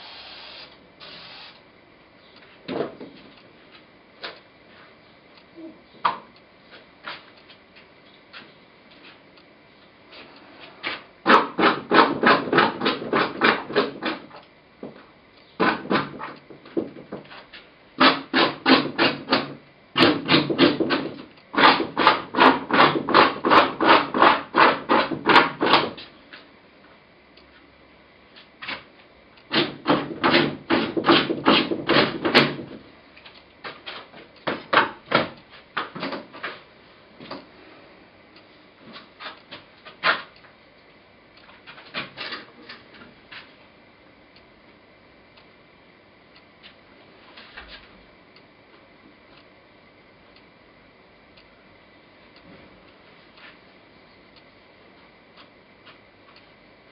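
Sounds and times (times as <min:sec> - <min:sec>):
painting tool striking panel: 0:10.9 - 0:14.4, 0:15.6 - 0:17.4, 0:18.0 - 0:26.0, 0:29.5 - 0:32.8.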